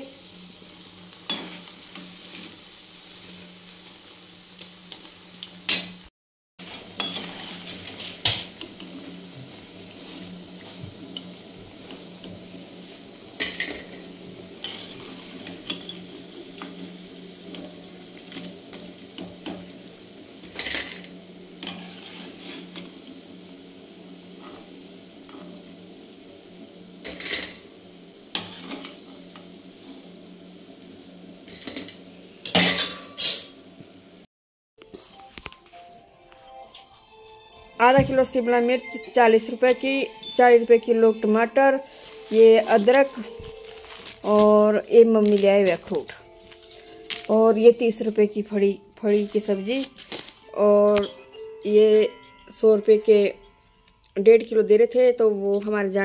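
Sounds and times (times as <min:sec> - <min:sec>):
oil sizzling: 0:00.0 - 0:54.8
metal spoon scraping pan: 0:06.6 - 0:08.8, 0:21.6 - 0:22.9, 0:28.3 - 0:29.0.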